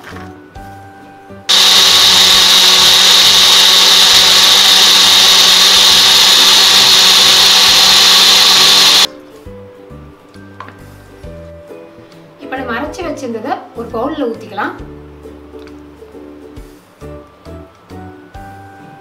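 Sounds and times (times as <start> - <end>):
mixer grinder whirring: 1.5 - 9.1.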